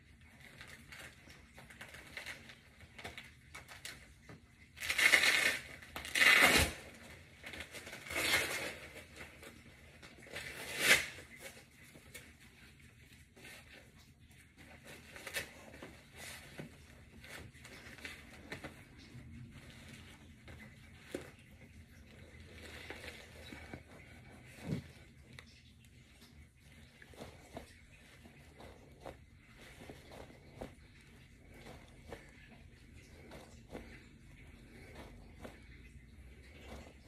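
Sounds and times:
rustles of straps: 0:00.0 - 0:37.0
hook-and-loop straps tearing: 0:04.8 - 0:06.9.

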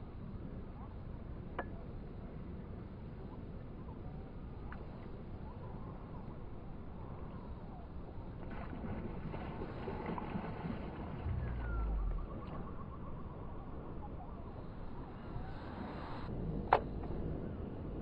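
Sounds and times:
steady outdoor hiss: 0:00.0 - 0:18.0
low rumble: 0:08.5 - 0:18.0.

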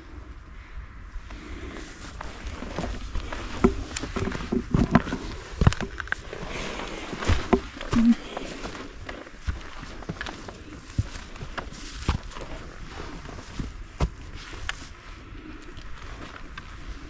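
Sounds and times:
footsteps on grass and rock: 0:01.7 - 0:15.1
brief low tone: 0:08.0 - 0:08.2.

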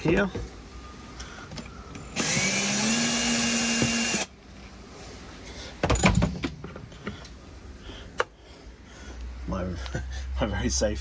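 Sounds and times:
cordless drill running: 0:02.1 - 0:04.3
knocks and rattles: 0:05.8 - 0:07.2.

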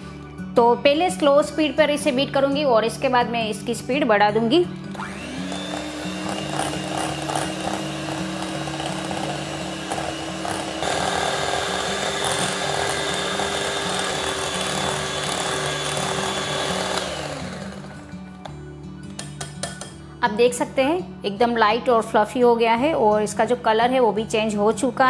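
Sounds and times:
electric hand mixer running: 0:04.9 - 0:18.5.

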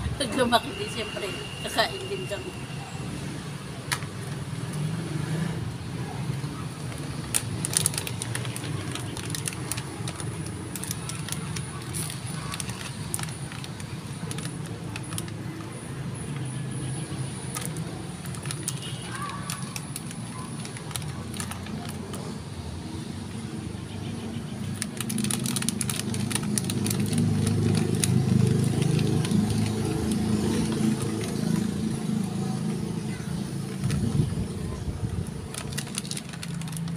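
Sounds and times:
road traffic rumble: 0:00.0 - 0:36.9
vehicle passing: 0:04.3 - 0:11.0
snack bag crinkling: 0:07.0 - 0:15.7, 0:17.5 - 0:22.2, 0:24.7 - 0:31.9, 0:35.4 - 0:36.9.

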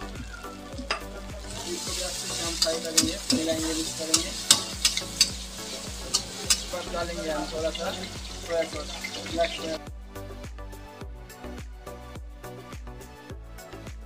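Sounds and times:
noodles sizzling in wok: 0:00.0 - 0:09.8
metal spatula clanking on wok: 0:01.8 - 0:06.8.

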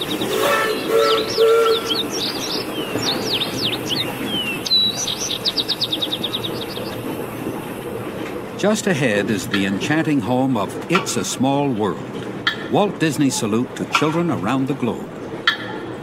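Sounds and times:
birds chirping and trilling: 0:00.0 - 0:08.3
train running noise: 0:00.0 - 0:16.0.

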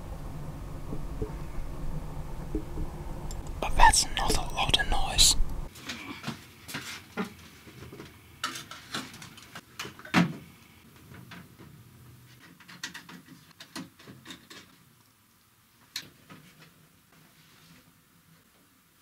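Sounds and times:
clicks and knocks handling objects: 0:12.4 - 0:14.8.

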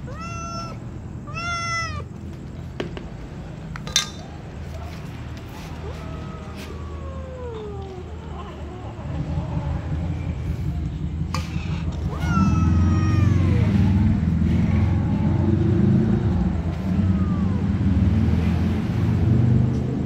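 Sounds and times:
cat meowing: 0:00.0 - 0:02.2, 0:05.5 - 0:09.8, 0:11.5 - 0:14.2, 0:16.7 - 0:18.0.

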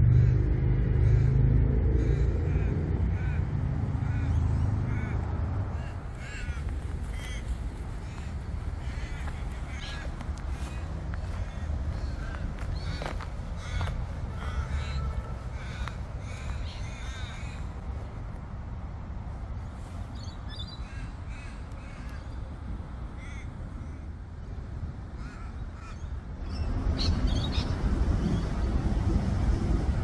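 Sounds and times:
low rumble: 0:00.0 - 0:19.6, 0:26.4 - 0:30.0
crows cawing: 0:01.0 - 0:17.8, 0:20.8 - 0:22.4, 0:23.2 - 0:24.1, 0:25.2 - 0:26.1.

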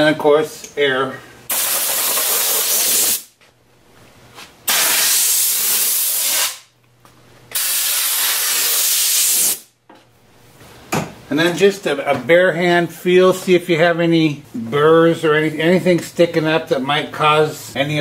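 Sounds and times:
air blow gun hissing: 0:01.5 - 0:03.3, 0:04.7 - 0:06.6, 0:07.5 - 0:09.7.

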